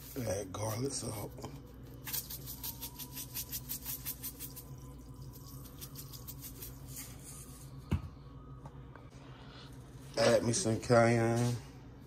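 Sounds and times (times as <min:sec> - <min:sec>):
low hum: 0:00.0 - 0:10.9
spice shaker shaking: 0:01.9 - 0:07.2.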